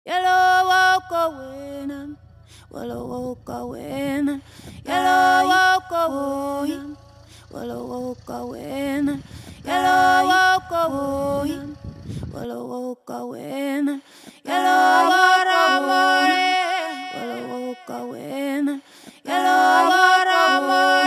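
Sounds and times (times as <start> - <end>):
person singing slow melody: 0.1 - 21.0
steady low drone: 0.8 - 12.4.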